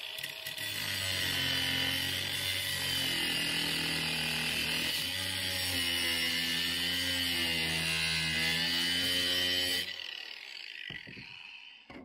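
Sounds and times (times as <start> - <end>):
grinder cutting steel rod: 0.0 - 12.0.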